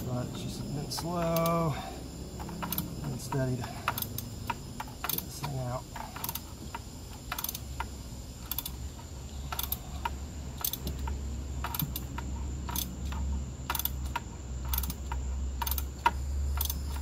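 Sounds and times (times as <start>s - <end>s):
ratchet wrench clicking: 0.0s - 17.0s.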